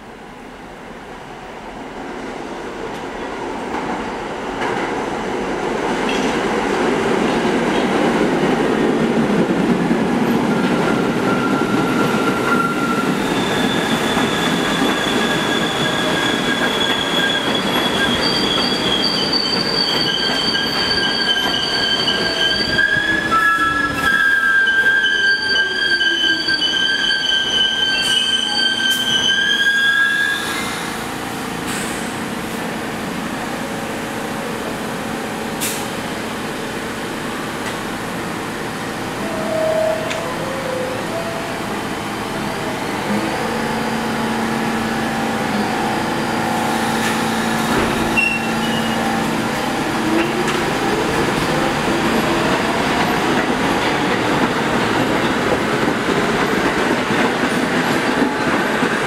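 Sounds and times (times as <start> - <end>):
train wheels rumbling on rail: 1.6 - 59.0
high-pitched brake squealing: 10.8 - 30.9, 39.3 - 41.5, 46.8 - 50.5.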